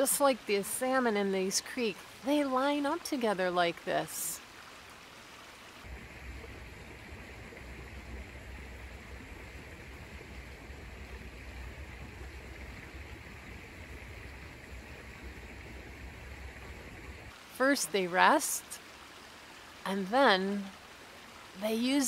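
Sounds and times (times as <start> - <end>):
creek water running over stones: 0.0 - 22.0
low rumble: 5.9 - 17.3.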